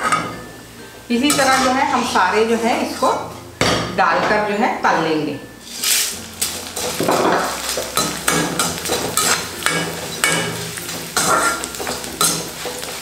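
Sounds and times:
flakes sizzling in oil: 0.0 - 3.1, 5.6 - 13.0
metal spoon scraping a pan: 1.2 - 2.2, 5.6 - 13.0.

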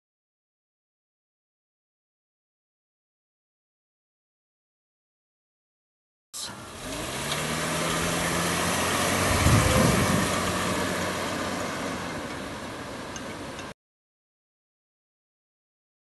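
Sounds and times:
car engine: 6.4 - 13.7
road noise: 6.4 - 13.8.

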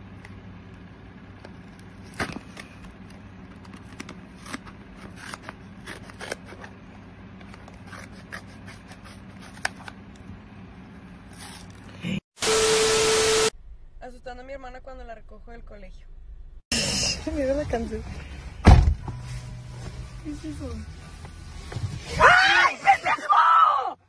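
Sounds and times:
scissors cutting carton: 3.8 - 6.7, 7.6 - 9.9.

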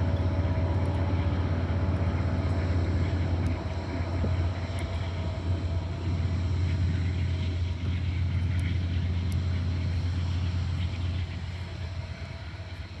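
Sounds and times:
distant diesel locomotive drone: 0.0 - 13.0.

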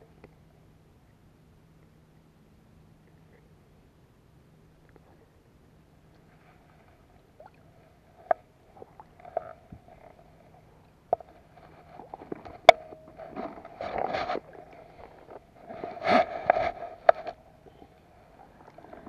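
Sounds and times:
water splashing and sloshing: 6.1 - 19.0.

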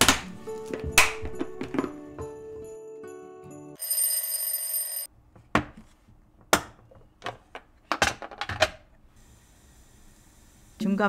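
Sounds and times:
background music: 0.0 - 3.8
ringing bell sound effect: 3.8 - 5.1.

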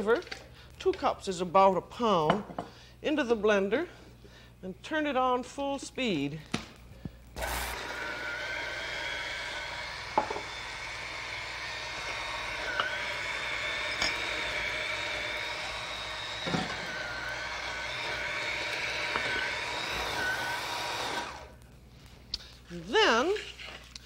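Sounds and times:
electric blender whirring: 7.4 - 21.6.

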